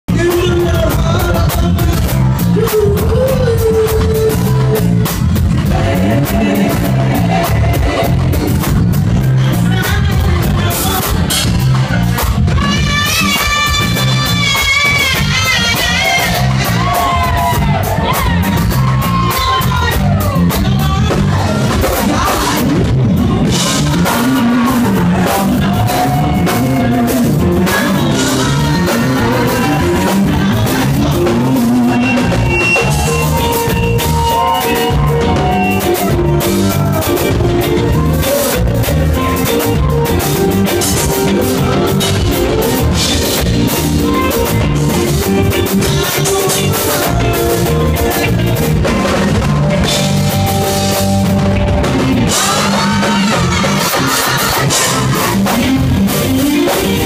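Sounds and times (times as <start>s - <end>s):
funk band playing: 0.0s - 57.0s
woman singing: 0.2s - 8.7s, 9.5s - 11.4s, 12.5s - 36.2s, 52.3s - 55.8s.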